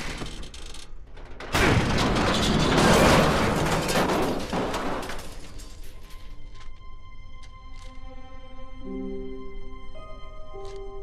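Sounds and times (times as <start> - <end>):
dense clattering: 0.0 - 6.3
cartoon metal crash: 1.4 - 5.9
soft sustained music tones: 5.6 - 11.0.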